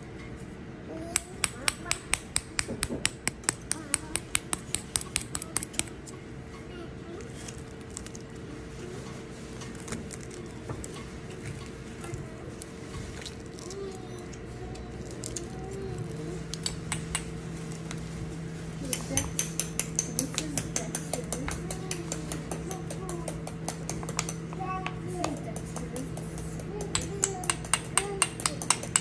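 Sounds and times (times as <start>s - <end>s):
plastic spoon tapping eggshell: 1.2s - 6.0s, 18.8s - 29.0s
faint voices: 8.3s - 16.6s.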